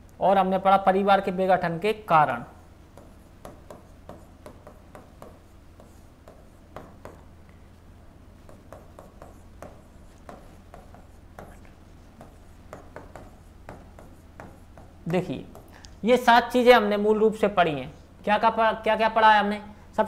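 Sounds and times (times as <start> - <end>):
steady low hum: 0.0 - 19.0
pen tapping on a screen: 2.9 - 7.3, 8.4 - 15.8.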